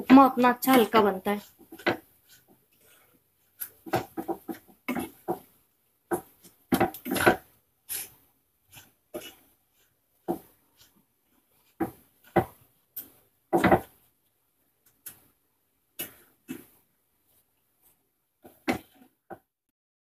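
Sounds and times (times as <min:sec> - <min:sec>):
spatula scraping a pan: 0:00.0 - 0:05.5, 0:06.1 - 0:14.0.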